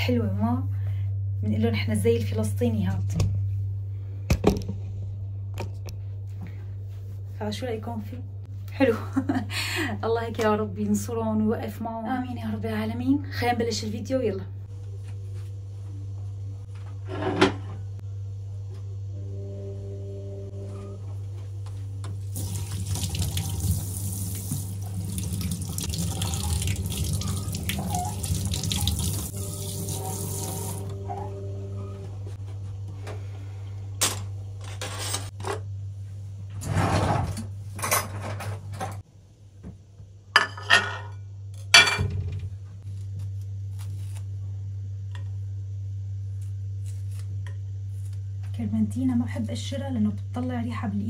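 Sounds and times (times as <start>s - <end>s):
steady low hum: 0.0s - 51.0s
faucet running into steel sink: 22.3s - 30.9s.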